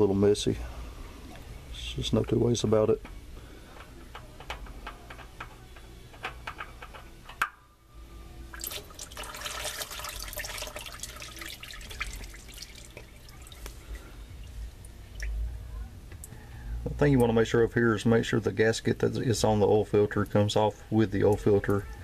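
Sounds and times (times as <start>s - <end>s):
oil trickling: 8.5s - 15.4s
oil dripping into pan: 8.6s - 15.4s.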